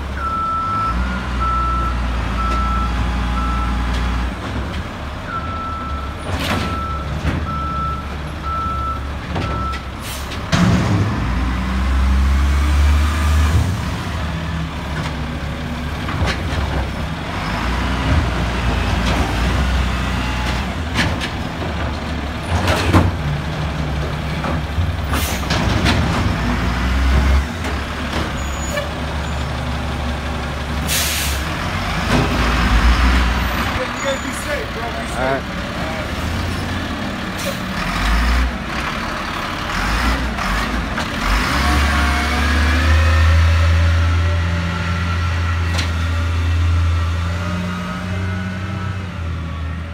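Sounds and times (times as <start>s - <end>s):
truck reversing beeper: 0.2s - 4.3s, 5.3s - 10.3s
truck engine revving: 10.4s - 49.9s
air brake hisses: 30.9s - 31.4s.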